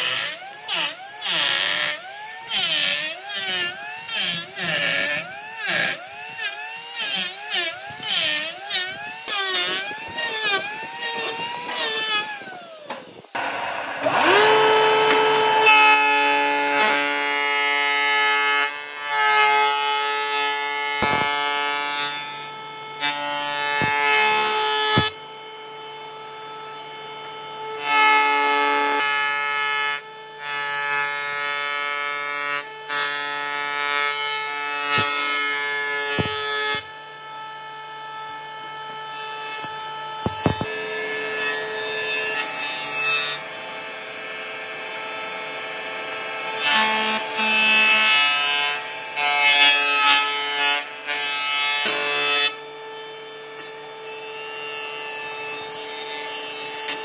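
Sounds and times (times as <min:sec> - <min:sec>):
jointer whining: 0:00.0 - 0:17.8, 0:18.6 - 0:27.9, 0:32.4 - 0:48.3
cutterhead shaving boards: 0:00.0 - 0:26.3, 0:30.0 - 0:57.0
wood knocks: 0:36.1 - 0:36.8, 0:40.2 - 0:40.7.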